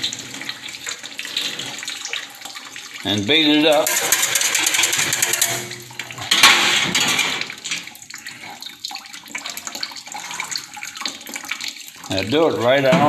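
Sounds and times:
water running into a steel sink: 0.0s - 13.0s
whisk rattling in a pitcher: 3.7s - 6.1s.

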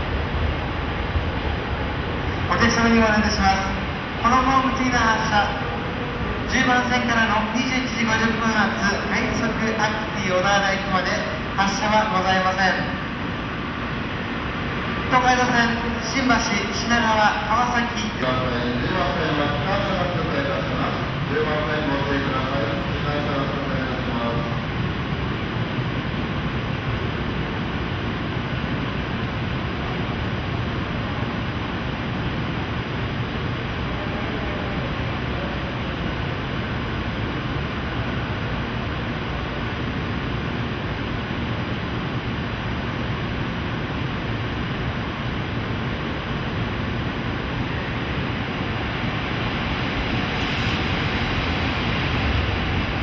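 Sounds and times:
railway station rumble and hiss: 0.0s - 53.0s
faint high hiss: 45.6s - 53.0s.

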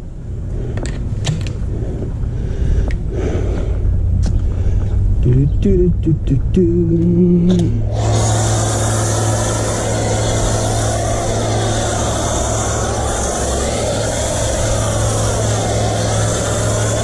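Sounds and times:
pressure washer motor hum: 4.3s - 17.0s
foam spray hissing: 7.9s - 17.0s.

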